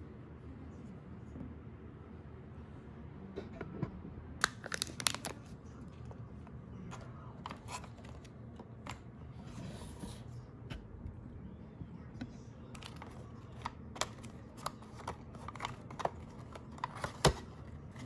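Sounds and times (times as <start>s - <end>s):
packaging clicks and rustle: 4.4s - 5.5s, 12.8s - 18.0s
plastic lid peeling crinkles: 4.4s - 5.5s.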